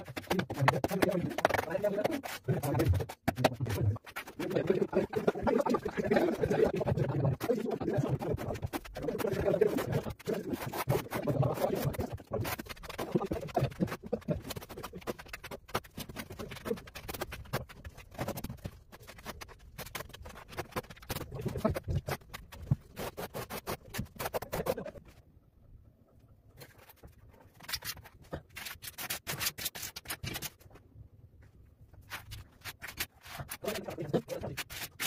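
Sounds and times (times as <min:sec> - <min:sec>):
trowel scraping adhesive: 0:00.0 - 0:25.0, 0:32.1 - 0:35.0.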